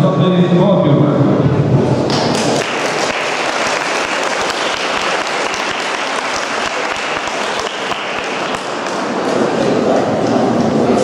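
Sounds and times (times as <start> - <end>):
audience applauding: 2.0 - 9.9.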